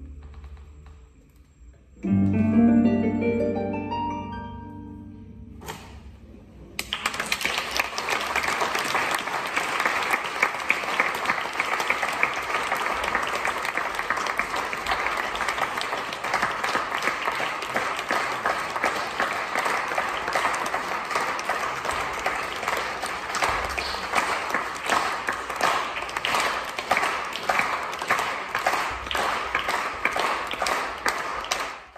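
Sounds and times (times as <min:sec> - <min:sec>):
audience applauding: 0:06.8 - 0:31.9.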